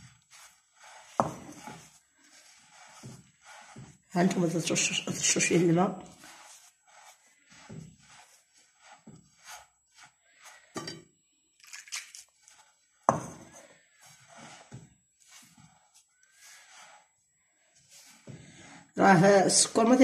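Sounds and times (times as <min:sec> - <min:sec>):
hands scratching semolina in dish: 0:00.0 - 0:10.8, 0:11.7 - 0:18.8.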